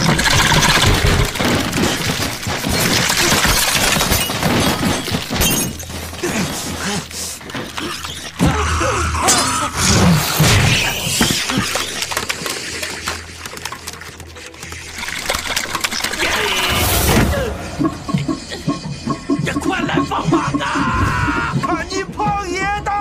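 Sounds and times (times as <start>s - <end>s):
glass shattering: 0.0s - 6.6s.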